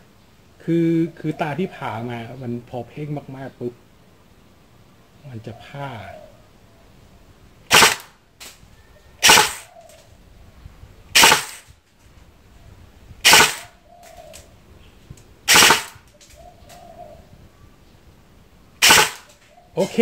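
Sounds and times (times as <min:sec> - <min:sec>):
airsoft gun full-auto bursts: 0:07.7 - 0:08.1, 0:09.2 - 0:09.7, 0:11.2 - 0:11.7, 0:13.2 - 0:13.7, 0:15.5 - 0:16.1, 0:18.8 - 0:19.3.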